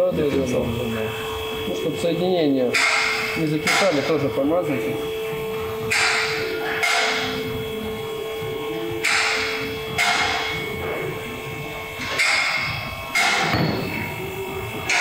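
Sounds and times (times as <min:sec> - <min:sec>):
steady hum: 0:00.0 - 0:15.0
sharp ringing knocks: 0:02.7 - 0:04.2, 0:05.8 - 0:07.4, 0:09.0 - 0:11.1, 0:12.0 - 0:14.2.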